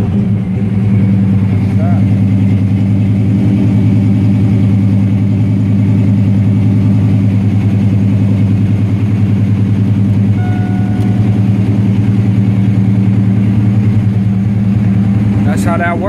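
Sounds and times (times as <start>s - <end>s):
car engine idling: 0.0s - 16.0s
faint short beep: 10.4s - 11.4s.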